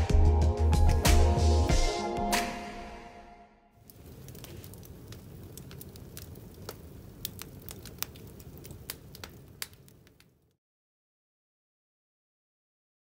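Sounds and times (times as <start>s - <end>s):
flames rushing: 3.8s - 10.5s
wood fire popping and crackling: 3.8s - 10.6s.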